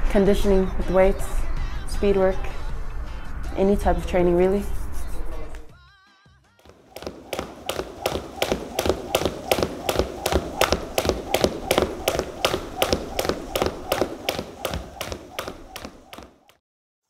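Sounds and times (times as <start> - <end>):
shoes tapping on wooden floor: 6.6 - 16.6.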